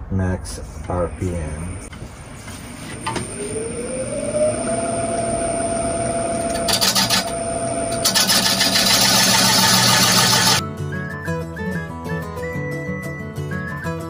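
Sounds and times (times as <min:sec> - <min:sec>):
lathe motor whine: 0:02.8 - 0:10.6.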